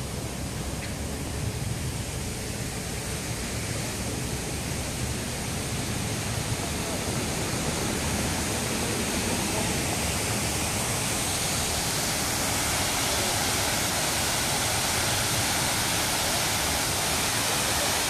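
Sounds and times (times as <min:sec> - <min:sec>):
water rushing over weir: 0:00.0 - 0:18.0.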